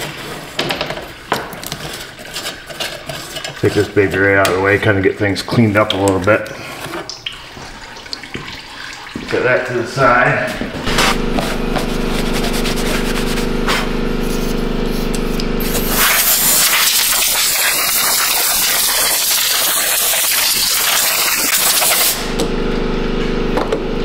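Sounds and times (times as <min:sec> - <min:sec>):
steady low hum: 0:09.7 - 0:16.7
air blow gun hissing: 0:10.9 - 0:22.3.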